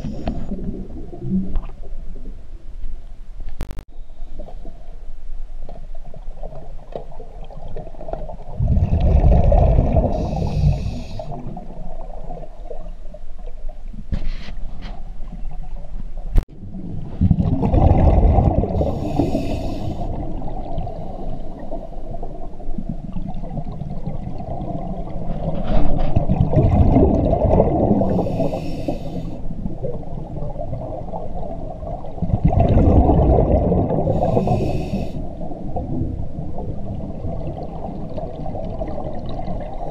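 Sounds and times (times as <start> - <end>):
exhaled bubbles: 6.4 - 13.6, 16.5 - 39.9
diver breathing through regulator: 10.0 - 11.5, 18.8 - 20.2, 20.8 - 22.1, 28.0 - 29.4, 34.0 - 35.4.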